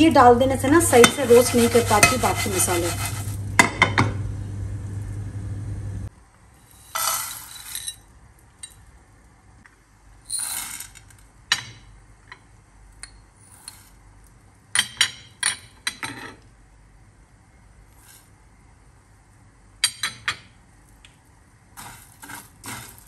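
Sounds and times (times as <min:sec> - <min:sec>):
spices rattling into a pan: 0:01.0 - 0:03.4, 0:06.7 - 0:08.0, 0:21.8 - 0:23.0.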